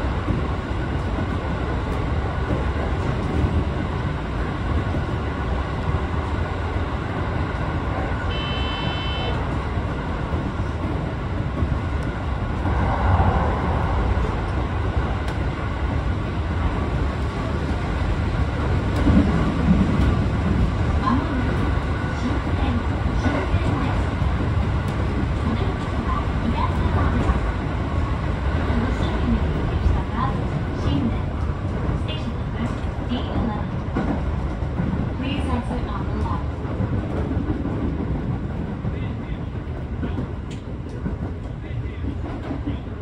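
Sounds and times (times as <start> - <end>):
train wheels rumbling on rails: 0.0 - 43.0
brief high tone: 8.3 - 9.4.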